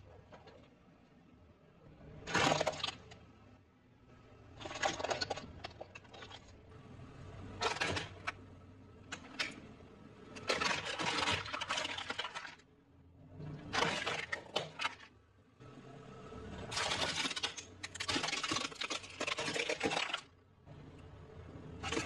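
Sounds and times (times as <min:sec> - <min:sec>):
plastic toys cracking under tyre: 0:02.3 - 0:03.2, 0:16.7 - 0:20.4.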